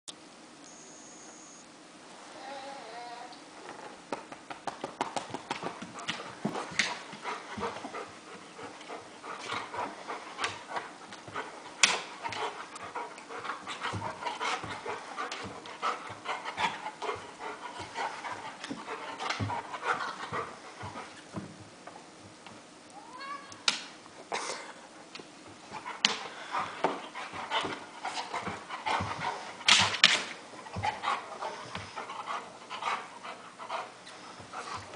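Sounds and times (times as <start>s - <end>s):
dog panting: 5.0s - 21.3s, 24.8s - 34.9s
paws and fur rustling: 5.0s - 22.2s.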